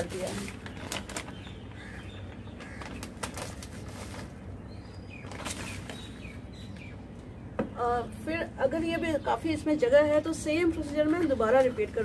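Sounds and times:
plastic bag crinkling: 0.0s - 2.0s, 2.6s - 4.6s, 5.2s - 6.1s
sharp plastic crackles: 0.0s - 6.9s.

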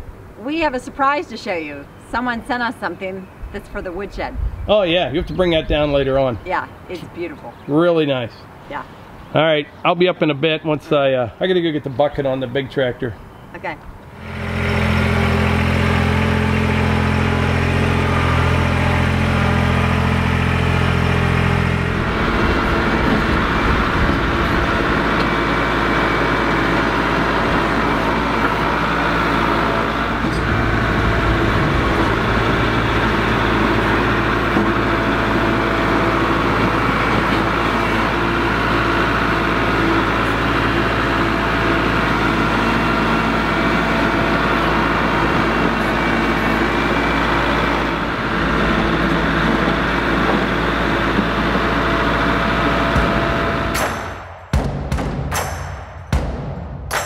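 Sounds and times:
tractor diesel engine running: 13.2s - 54.6s
loader bucket pushing sod: 14.2s - 54.2s.

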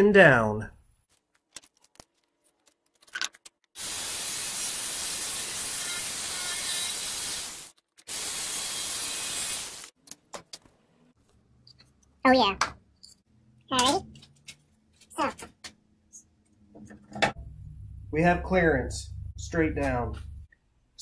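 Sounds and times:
power jigsaw cutting wood panel: 3.8s - 9.9s.

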